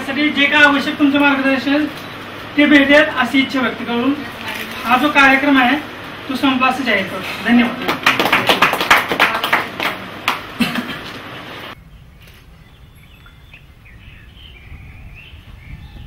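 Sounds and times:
group clapping: 7.5 - 11.3
birds chirping faintly: 11.7 - 16.0.

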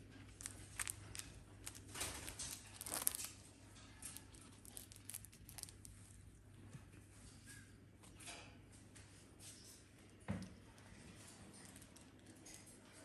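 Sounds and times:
beak tearing and crinkling: 0.0 - 6.3.

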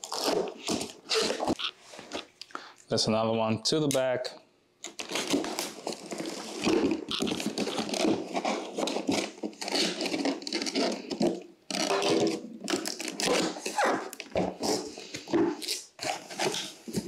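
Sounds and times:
knife slitting packing tape: 0.0 - 1.6, 4.8 - 6.5, 7.1 - 14.9, 15.5 - 17.0
cardboard scraping and rustling: 5.0 - 17.0.

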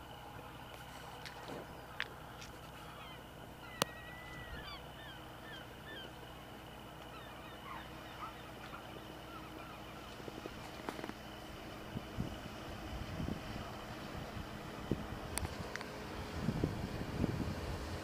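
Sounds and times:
distant motorboat engine droning: 0.0 - 18.0
birds calling: 0.1 - 12.0.

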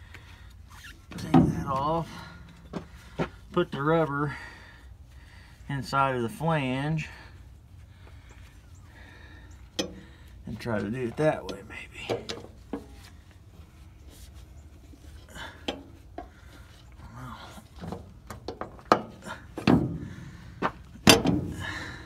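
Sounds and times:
rubber rubbing and handling: 12.4 - 17.0.

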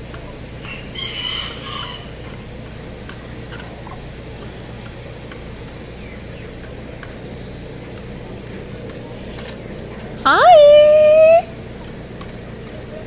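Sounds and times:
chickens clucking: 0.0 - 13.0
steady low hum: 0.0 - 13.0
high-pitched chicken call: 0.6 - 2.4, 10.3 - 11.5.

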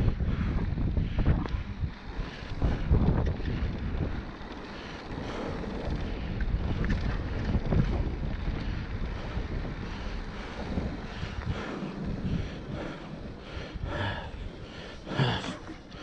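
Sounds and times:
bike tyres rumbling on dirt: 0.0 - 16.0
wind buffeting microphone: 0.0 - 16.0.

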